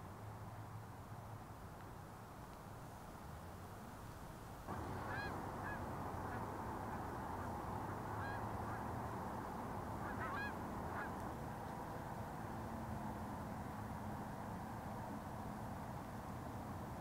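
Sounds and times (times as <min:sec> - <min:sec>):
background hiss: 0:00.0 - 0:17.0
geese honking: 0:04.7 - 0:11.3.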